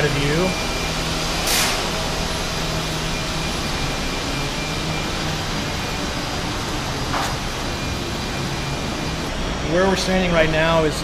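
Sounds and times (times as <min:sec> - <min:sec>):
construction machinery hiss: 0:01.4 - 0:02.1.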